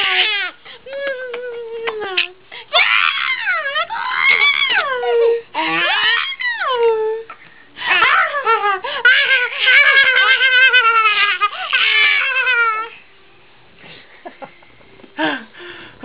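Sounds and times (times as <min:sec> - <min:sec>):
baby laughing: 0:07.9 - 0:13.0.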